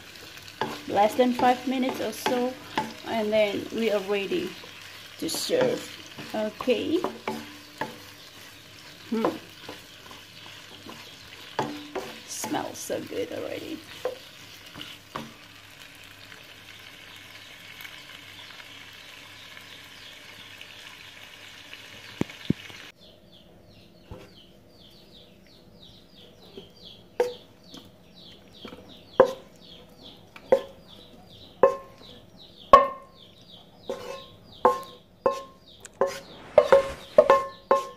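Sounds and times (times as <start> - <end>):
food sizzling in a pan: 0.0 - 23.0, 33.9 - 37.9.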